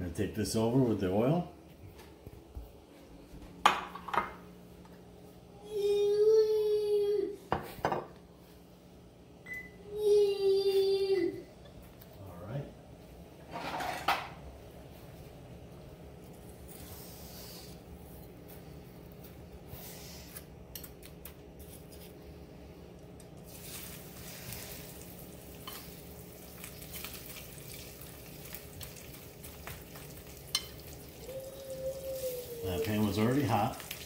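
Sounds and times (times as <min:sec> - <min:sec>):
steady low hum: 0:00.0 - 0:33.1
cutlet sizzling in hot oil: 0:23.5 - 0:31.3, 0:32.2 - 0:34.0.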